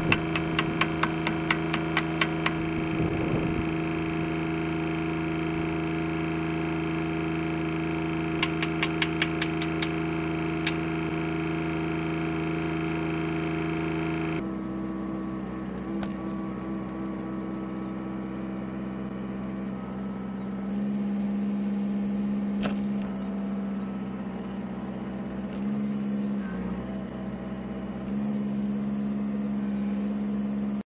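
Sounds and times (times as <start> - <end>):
sharp clicks: 0.0 - 2.7, 8.3 - 11.0
diesel engine running: 0.0 - 30.8.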